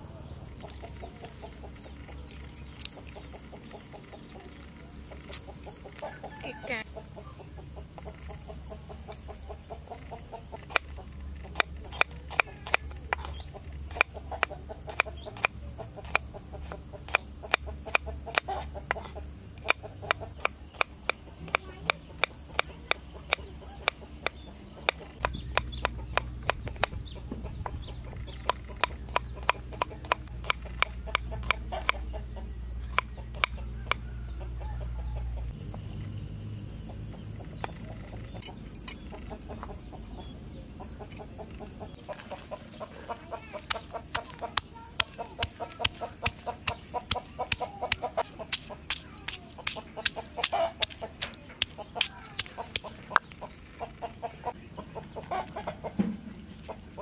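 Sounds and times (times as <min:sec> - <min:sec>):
chickens clucking: 0:00.0 - 0:35.9, 0:36.8 - 0:57.0
low hum: 0:25.1 - 0:47.8.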